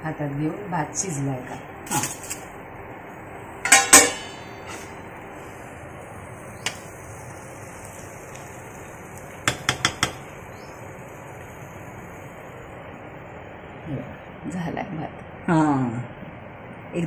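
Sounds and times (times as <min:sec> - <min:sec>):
metal pot lid clanking: 0:03.6 - 0:05.0.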